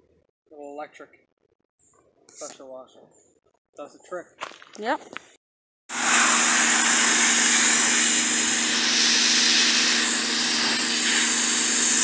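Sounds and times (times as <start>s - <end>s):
pressure washer motor hum: 5.9s - 12.0s
water jet hissing onto wood: 5.9s - 12.0s.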